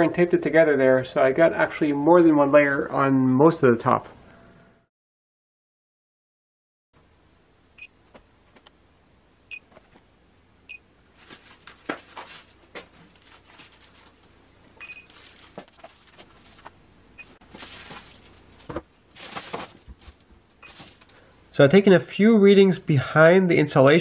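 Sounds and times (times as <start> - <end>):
foil wrap crinkling: 11.1 - 16.8, 17.4 - 21.2.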